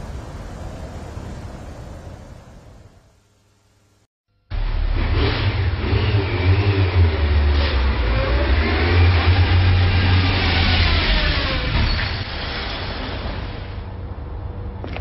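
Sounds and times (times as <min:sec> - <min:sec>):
vehicle engine revving: 0:04.5 - 0:11.8.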